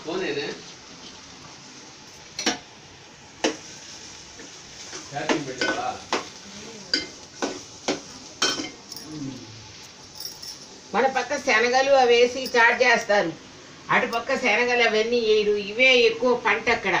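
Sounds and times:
vegetables sizzling in oil: 0:00.0 - 0:17.0.

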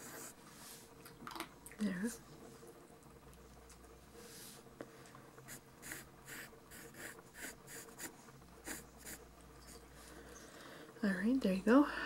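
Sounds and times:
pencil scratching on paper: 0:05.5 - 0:09.2.

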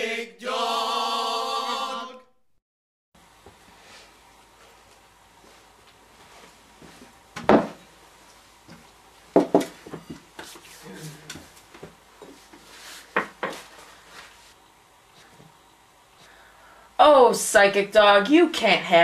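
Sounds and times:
wooden chair knocking: 0:07.4 - 0:07.8, 0:09.3 - 0:10.2, 0:13.1 - 0:13.6.

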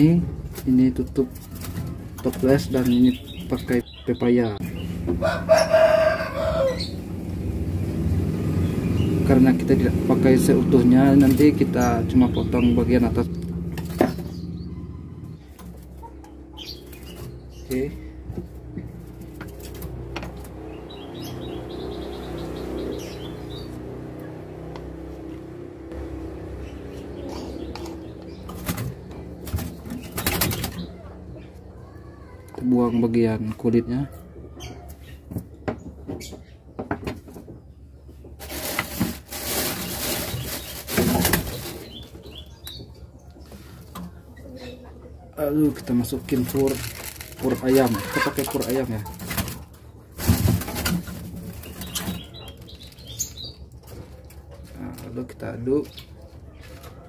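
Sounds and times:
bird chirping rapidly: 0:20.6 - 0:23.8
bird wings flapping in cage: 0:28.5 - 0:30.9, 0:38.4 - 0:42.0.

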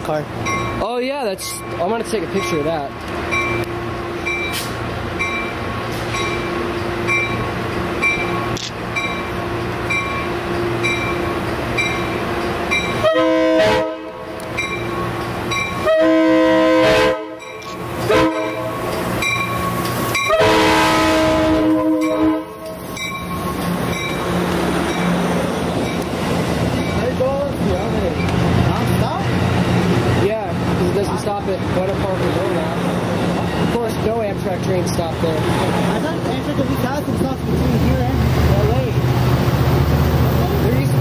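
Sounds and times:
train bell ringing: 0:00.4 - 0:13.1, 0:14.5 - 0:15.9, 0:17.4 - 0:20.4, 0:21.8 - 0:25.2, 0:26.8 - 0:28.4
train horn: 0:13.0 - 0:14.3, 0:15.8 - 0:17.5, 0:18.1 - 0:18.8, 0:20.3 - 0:22.7.

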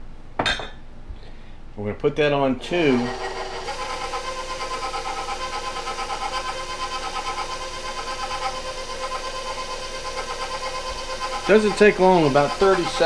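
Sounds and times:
stand mixer whipping: 0:02.7 - 0:13.0.

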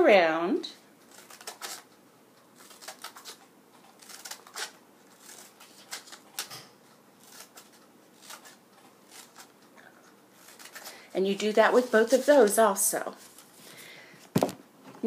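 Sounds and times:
scissors snipping paper: 0:01.0 - 0:01.9, 0:02.6 - 0:09.6, 0:10.4 - 0:13.4.

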